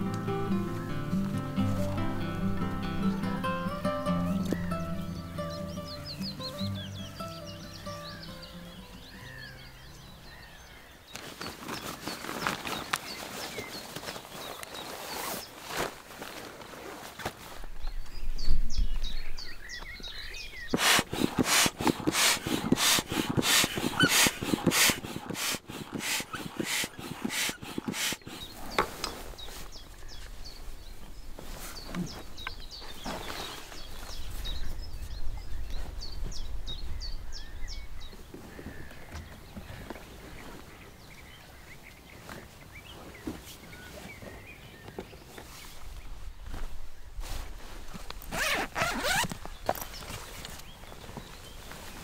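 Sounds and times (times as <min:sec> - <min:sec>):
bird singing: 0:00.0 - 0:15.7, 0:17.8 - 0:46.2
air pump whooshing: 0:20.7 - 0:29.7, 0:48.4 - 0:49.3.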